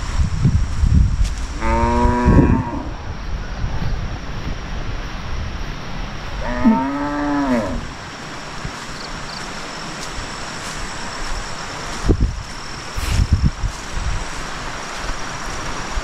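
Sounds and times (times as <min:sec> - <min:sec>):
steady rushing noise: 0:00.0 - 0:01.6, 0:02.2 - 0:06.5, 0:07.1 - 0:16.0
cow mooing: 0:01.6 - 0:03.0, 0:06.4 - 0:07.9.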